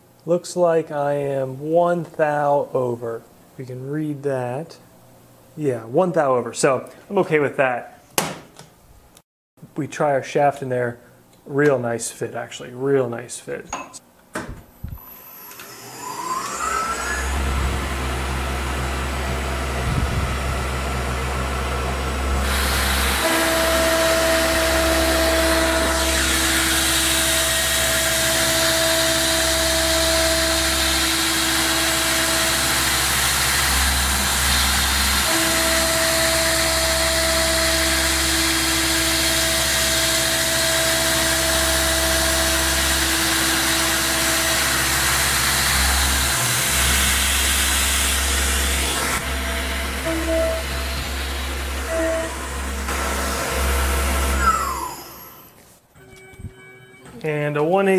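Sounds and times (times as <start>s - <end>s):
tool cutting metal whine: 15.0s - 19.8s, 21.5s - 55.5s
milling machine spindle whine: 15.0s - 55.5s.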